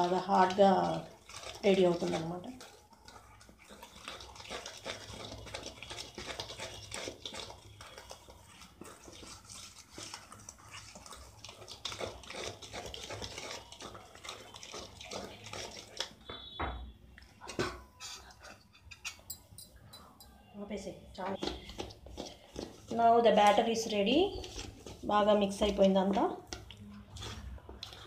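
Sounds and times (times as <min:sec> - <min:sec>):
utensil scraping steel bowl: 0:00.0 - 0:16.1.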